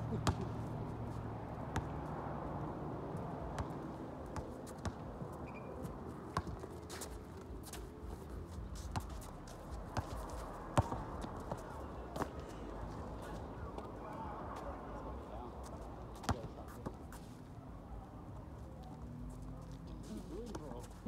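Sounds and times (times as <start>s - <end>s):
basketball bouncing on concrete: 0.2s - 0.5s, 1.7s - 1.9s, 3.5s - 3.8s, 9.9s - 10.2s, 10.8s - 11.6s
sneakers scuffing: 5.8s - 12.6s.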